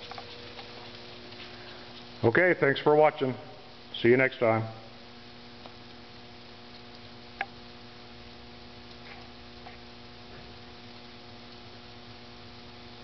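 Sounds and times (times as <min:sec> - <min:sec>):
low electrical hum: 0:00.0 - 0:13.0
faint ticks: 0:06.7 - 0:07.5.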